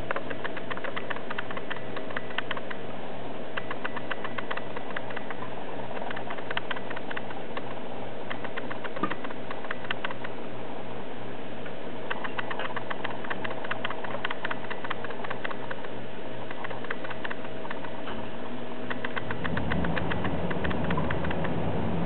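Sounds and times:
plastic ball rolling and clicking: 0.0 - 2.8
steady low hum: 0.0 - 22.0.

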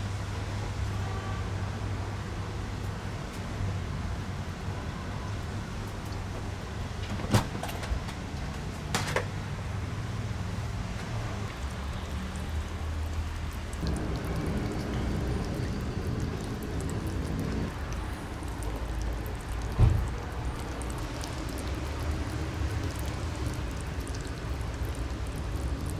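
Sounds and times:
kittens lapping: 11.7 - 25.9
low steady rumble: 13.8 - 19.2.

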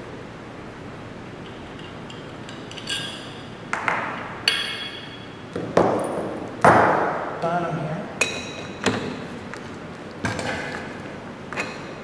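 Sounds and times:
ringing metallic clinks: 1.4 - 5.4.

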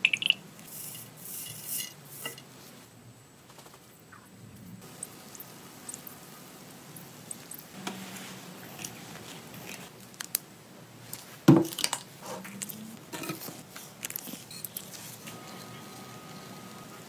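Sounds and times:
soft handling rustles and clicks: 7.3 - 15.8.

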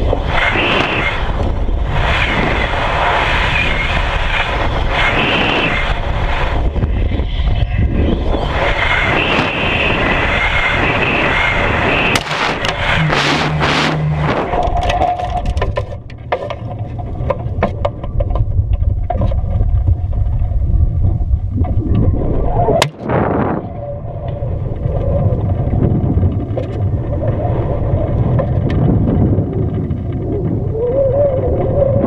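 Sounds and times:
wind buffeting microphone: 0.0 - 32.0
airframe clicks and rattles: 14.4 - 18.5.

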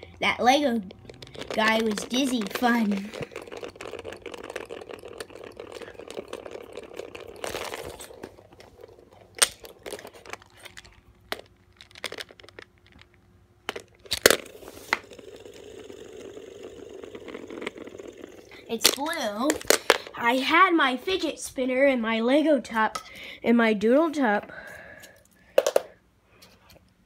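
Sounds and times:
spinning top clicking on wood: 0.8 - 8.8, 13.7 - 20.1.

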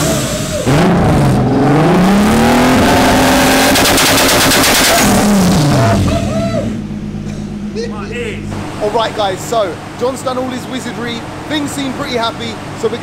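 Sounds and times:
car engine revving and idling: 0.0 - 13.0
exhaust crackling bangs: 2.3 - 10.5.

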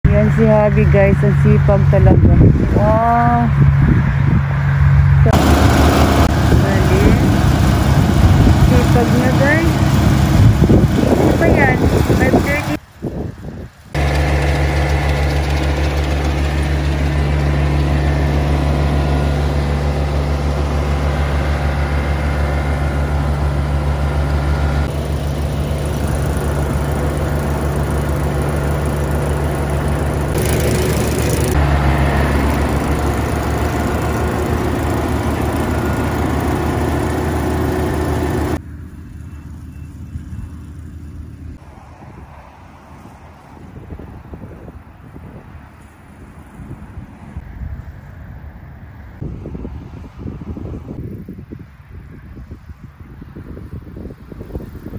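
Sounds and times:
combine harvester engine hum: 0.0 - 54.9
wind noise on microphone: 0.1 - 14.0, 41.5 - 54.9
working machinery noise: 5.2 - 12.9, 13.6 - 41.8.

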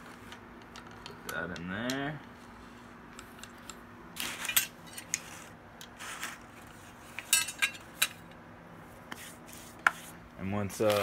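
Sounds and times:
steel parts clinking and knocking: 7.1 - 8.3.

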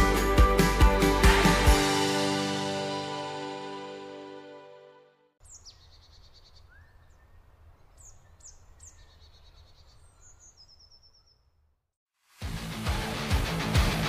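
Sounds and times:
background music: 0.0 - 5.3, 12.4 - 14.0
small birds calling: 5.4 - 11.5.

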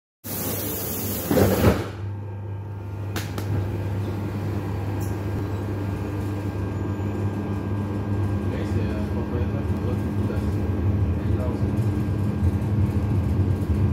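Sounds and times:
train doors hissing shut: 0.2 - 2.0
low hum of metro car: 0.3 - 13.9.

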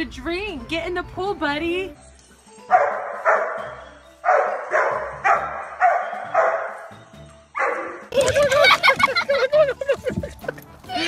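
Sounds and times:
dog barking: 2.7 - 6.9, 7.6 - 8.0.

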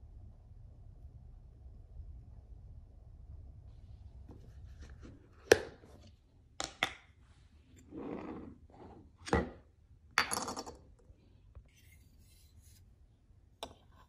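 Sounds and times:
scraping rub on countertop: 11.7 - 13.0.

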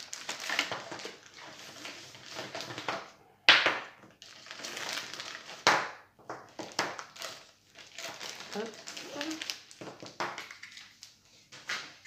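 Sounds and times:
plastic bag crinkling: 0.0 - 2.9, 4.2 - 5.7, 6.5 - 12.0
plastic pieces knocking on table: 5.6 - 7.1, 9.8 - 10.7.

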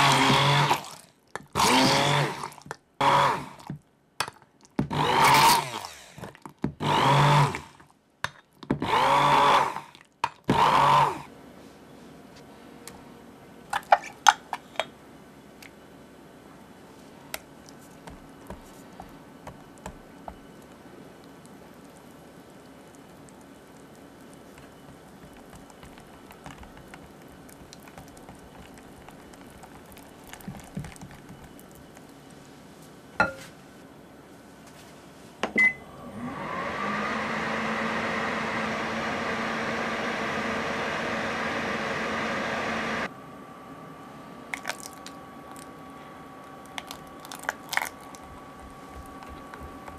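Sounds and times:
microwave oven humming: 35.5 - 49.9.

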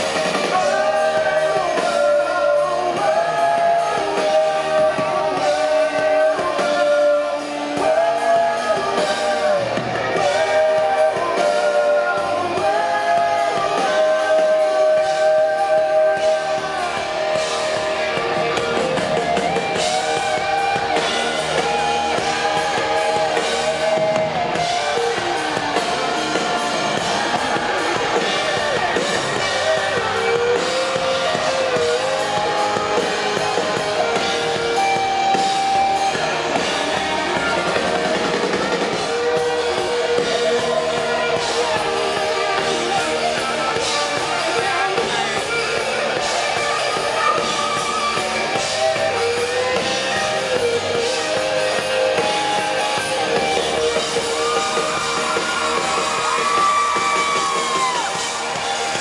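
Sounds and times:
man singing: 0.0 - 58.0
drum kit: 0.0 - 59.0
electric guitars: 0.0 - 59.0.

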